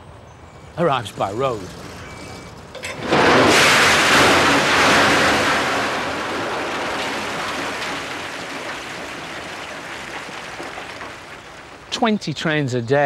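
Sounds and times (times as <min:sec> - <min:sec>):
coal lumps pouring onto heap: 0:00.9 - 0:12.2.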